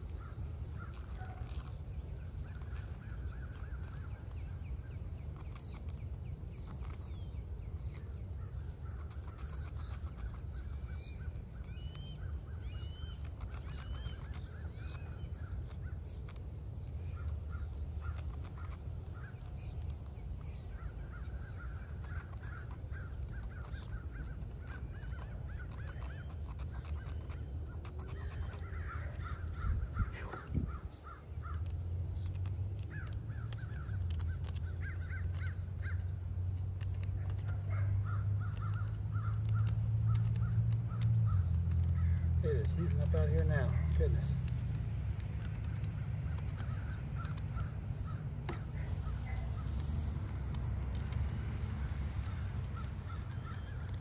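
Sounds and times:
small birds chirping: 0:00.0 - 0:54.0
steady low rumble: 0:00.0 - 0:54.0
crows cawing: 0:28.2 - 0:31.7, 0:34.7 - 0:36.1, 0:38.0 - 0:42.4, 0:46.3 - 0:48.6, 0:52.3 - 0:54.0.

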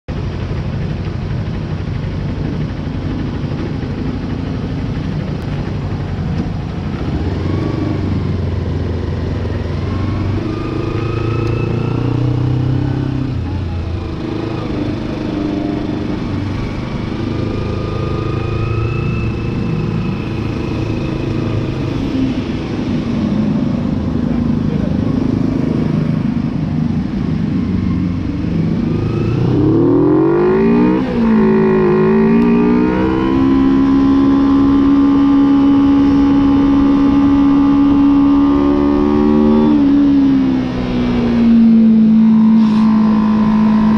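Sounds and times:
motorcycle engine revving: 0:00.1 - 0:43.9.

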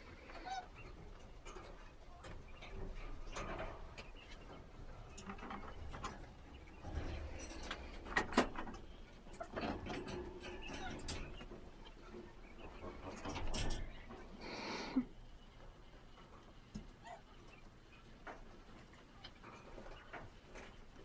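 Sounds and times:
poultry calling: 0:00.0 - 0:08.0, 0:16.7 - 0:18.3.

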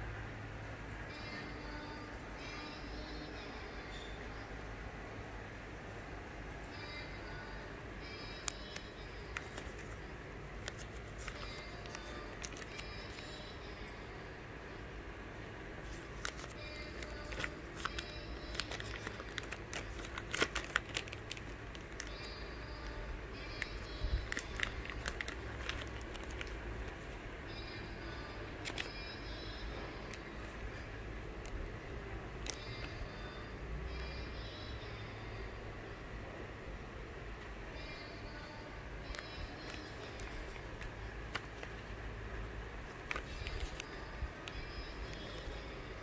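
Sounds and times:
low background hum: 0:00.0 - 0:46.0
plastic packaging crinkling: 0:08.4 - 0:10.0, 0:10.6 - 0:13.4, 0:15.8 - 0:22.3, 0:23.6 - 0:27.2, 0:28.6 - 0:29.0, 0:39.1 - 0:45.7.

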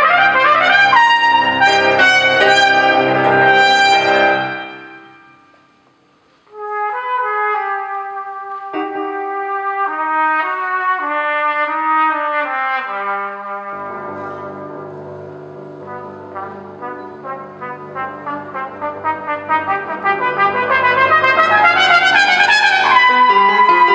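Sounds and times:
cornet melody: 0:00.0 - 0:05.6, 0:06.5 - 0:11.2, 0:13.6 - 0:23.9
low sustained accompaniment: 0:13.8 - 0:22.1.

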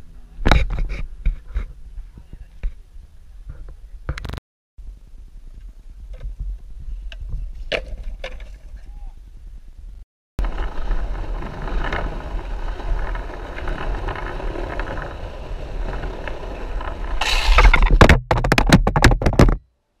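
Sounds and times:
longboard wheels rolling on concrete: 0:10.4 - 0:19.4
sharp knocks and clatter: 0:17.2 - 0:19.7.

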